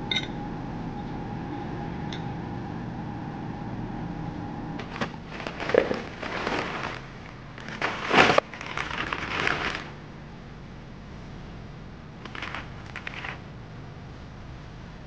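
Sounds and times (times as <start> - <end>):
plastic packaging crinkling: 4.8 - 10.0, 12.2 - 13.4.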